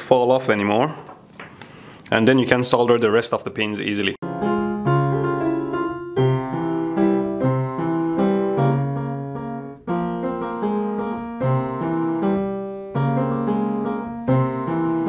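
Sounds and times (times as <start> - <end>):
piano music: 4.2 - 15.0.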